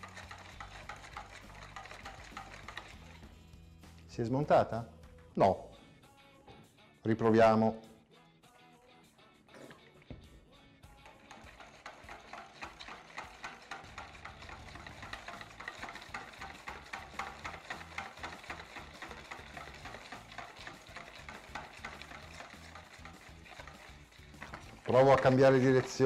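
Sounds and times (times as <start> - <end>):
whisk clicking and scraping bowl: 0.0 - 3.5, 10.9 - 26.0.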